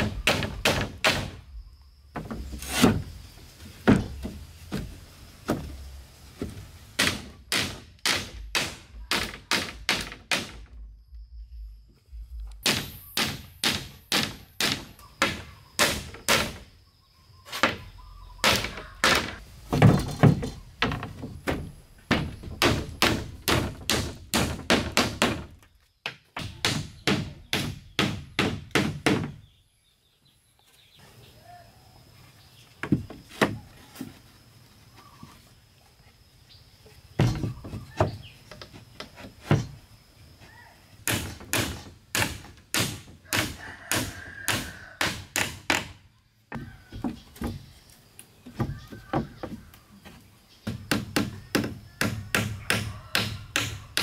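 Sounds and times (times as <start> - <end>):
hammer striking nails into wood: 12.6 - 16.6, 21.5 - 25.5, 26.4 - 29.4, 41.0 - 46.0, 50.6 - 54.0.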